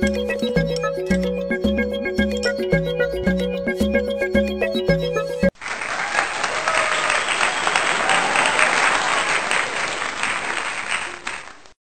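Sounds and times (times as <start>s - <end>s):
crowd applause: 5.5s - 11.7s.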